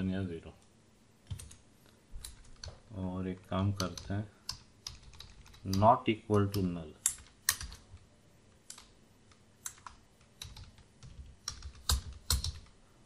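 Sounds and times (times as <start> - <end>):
typing on computer keyboard: 3.8 - 5.8, 6.4 - 8.0, 9.6 - 12.7.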